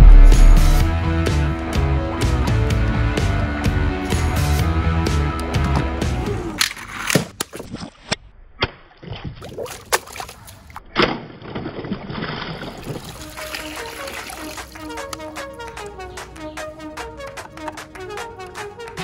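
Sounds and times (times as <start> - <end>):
water sloshing in a plastic basin: 9.4 - 14.8
sharp splashes: 9.4 - 15.7.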